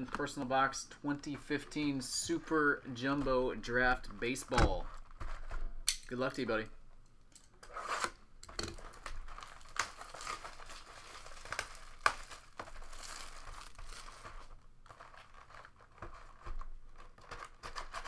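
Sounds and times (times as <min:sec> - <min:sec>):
plastic wrap crinkling: 0:00.0 - 0:06.4, 0:07.6 - 0:18.0
plastic wrap snapping: 0:08.0 - 0:18.0.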